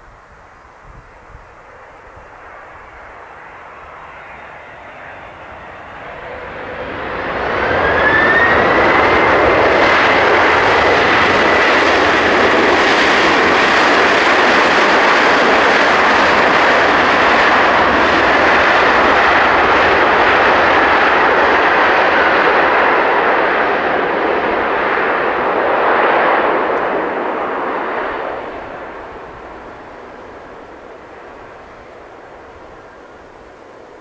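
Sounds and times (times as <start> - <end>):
jet engines roaring: 0.0 - 34.0.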